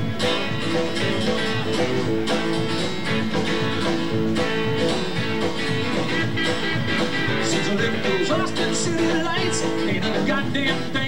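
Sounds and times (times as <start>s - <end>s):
country band playing: 0.0s - 11.0s
electric guitar: 0.0s - 11.0s
strummed acoustic guitar: 0.0s - 11.0s.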